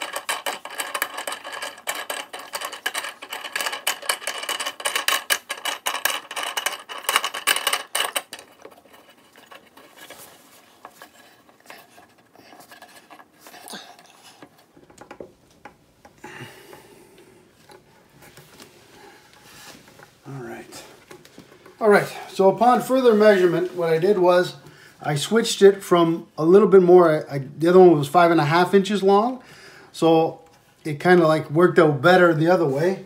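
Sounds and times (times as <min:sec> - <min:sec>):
metal clamp clicking and rattling: 0:00.0 - 0:10.1.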